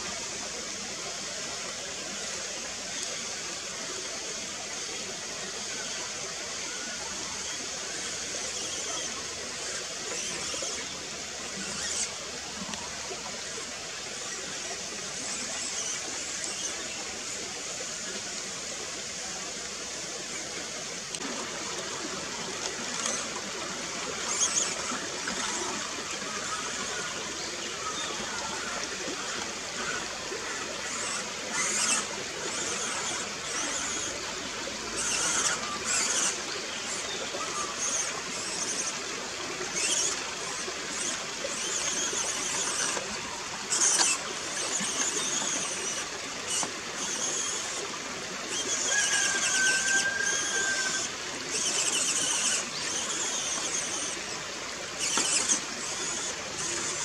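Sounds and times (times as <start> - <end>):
creek water running: 0.0 - 57.0
toy truck motor whining: 0.0 - 57.0.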